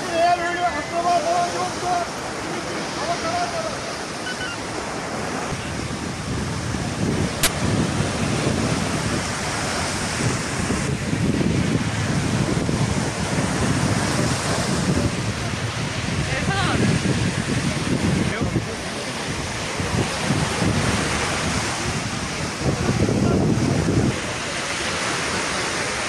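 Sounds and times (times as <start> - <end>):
waves breaking on shore: 0.0 - 26.0
wind buffeting microphone: 0.0 - 26.0
sharp click: 7.4 - 7.6.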